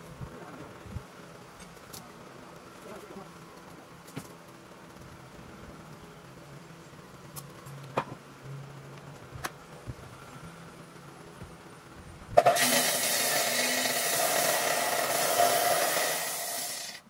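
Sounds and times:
power tool cutting wood: 12.4s - 17.0s.

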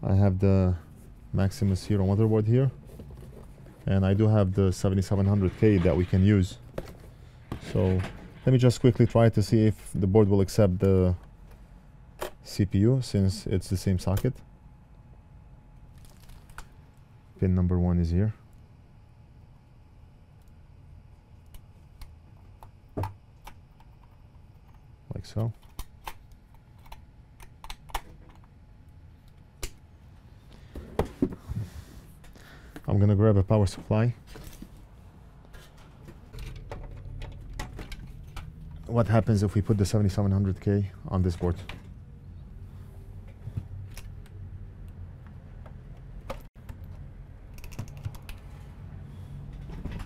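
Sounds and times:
steady low hum: 0.0s - 50.0s
cables and connectors clicking: 43.3s - 48.5s.

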